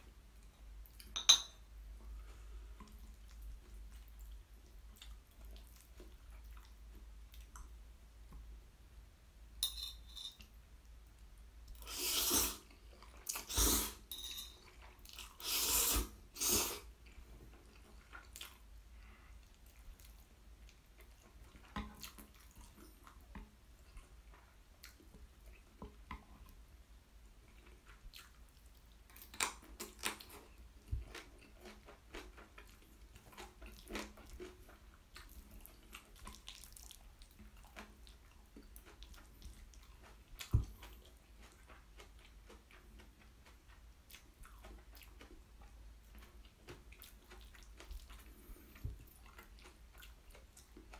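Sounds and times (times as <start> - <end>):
wet chewing and mouth clicks: 2.8 - 7.8, 14.5 - 26.6, 27.4 - 50.9
noodle slurps: 11.8 - 14.1, 15.2 - 16.9.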